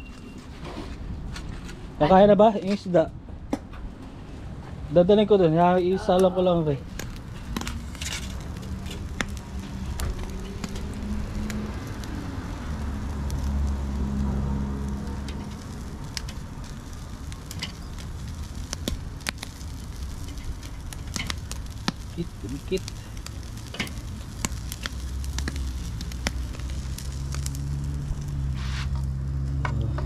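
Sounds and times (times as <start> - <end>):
food sizzling on a grill: 5.8 - 29.4.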